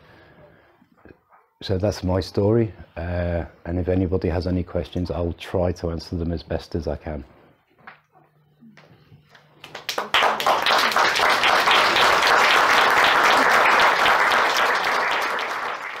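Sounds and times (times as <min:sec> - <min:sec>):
audience applauding: 0:09.6 - 0:16.0.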